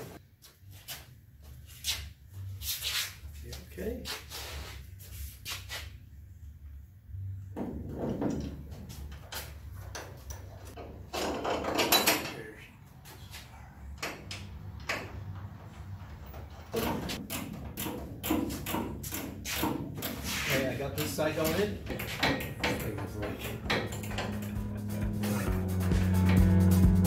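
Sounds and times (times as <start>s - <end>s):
metal clicks and clunks: 7.6s - 12.4s, 21.4s - 24.7s.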